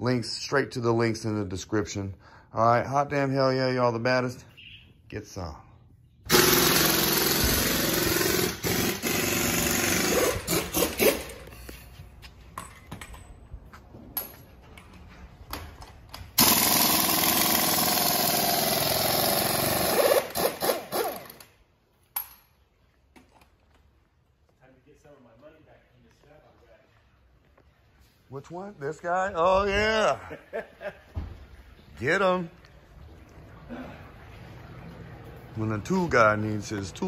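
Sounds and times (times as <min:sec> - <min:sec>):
quiet workshop noise: 0:00.0 - 0:37.0
pneumatic tool running: 0:06.3 - 0:11.5, 0:16.4 - 0:21.5.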